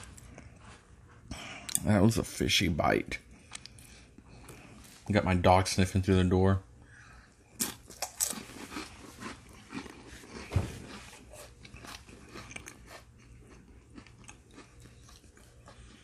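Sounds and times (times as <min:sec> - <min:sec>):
person chewing crackers: 0:03.2 - 0:05.0, 0:07.2 - 0:16.0.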